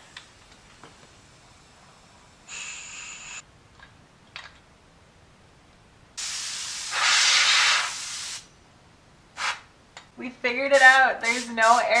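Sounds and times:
compressed air hissing: 0:01.0 - 0:03.4, 0:06.2 - 0:08.5, 0:09.4 - 0:09.7, 0:10.7 - 0:12.0.

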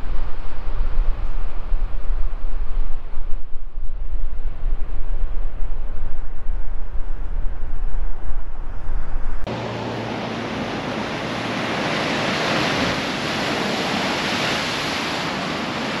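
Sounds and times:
low rumble: 0:00.0 - 0:10.8
waves crashing on rocks: 0:09.6 - 0:16.0.

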